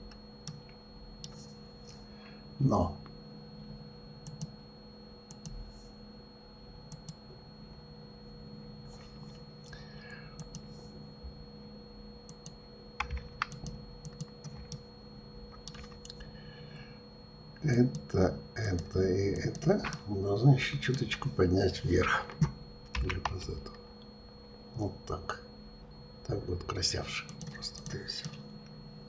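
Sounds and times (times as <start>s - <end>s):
faint steady hum: 0.0s - 29.0s
keyboard keystrokes and clicks: 4.2s - 4.5s, 12.3s - 14.8s, 15.5s - 16.2s, 22.4s - 23.8s.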